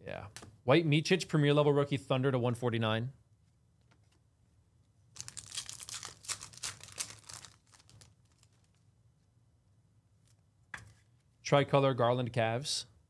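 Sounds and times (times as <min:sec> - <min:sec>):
card pack wrapper tearing: 0:05.1 - 0:08.8.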